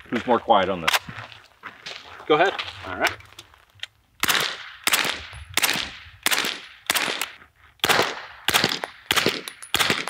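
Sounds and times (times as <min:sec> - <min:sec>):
suppressed gunshots with echo: 0:04.2 - 0:10.0.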